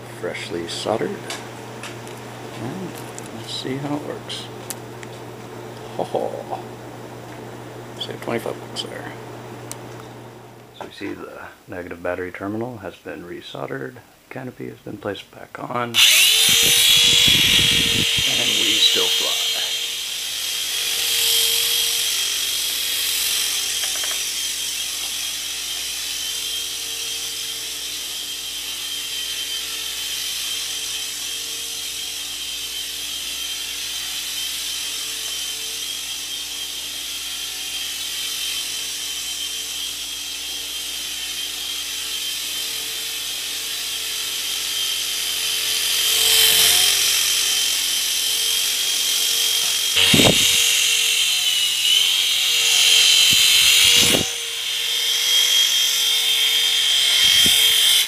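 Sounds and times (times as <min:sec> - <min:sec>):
rc helicopter high-pitched whir: 0:02.6 - 0:04.5, 0:06.0 - 0:06.6, 0:16.0 - 0:58.0.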